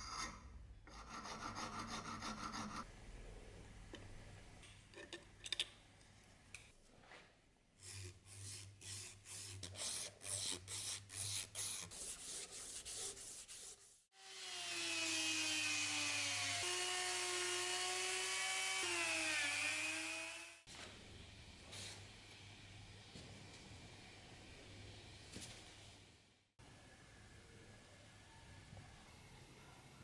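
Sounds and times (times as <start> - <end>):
sandpaper rubbing wood: 7.8 - 14.1.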